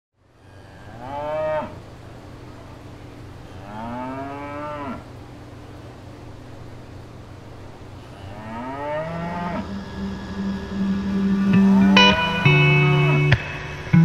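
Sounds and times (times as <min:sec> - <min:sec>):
steady low hum: 0:00.2 - 0:14.0
cow mooing: 0:00.5 - 0:01.9, 0:03.6 - 0:05.1, 0:08.1 - 0:13.3.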